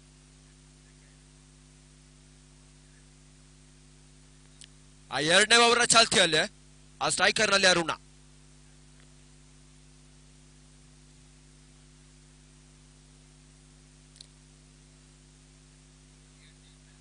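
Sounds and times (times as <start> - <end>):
faint hum and hiss: 0.0 - 17.0
faint click: 4.4 - 4.8, 14.1 - 14.4.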